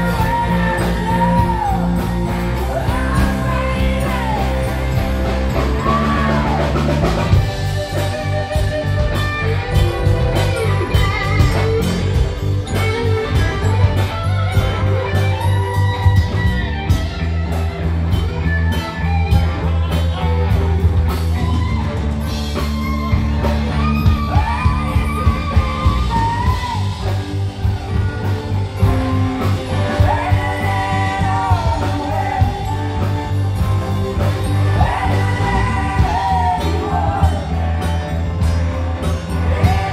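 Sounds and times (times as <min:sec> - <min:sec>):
woman singing: 0:00.0 - 0:06.9, 0:28.8 - 0:33.2, 0:34.4 - 0:37.8
drum kit: 0:00.0 - 0:39.9
electric bass: 0:00.0 - 0:39.9
electric guitar: 0:00.0 - 0:39.9.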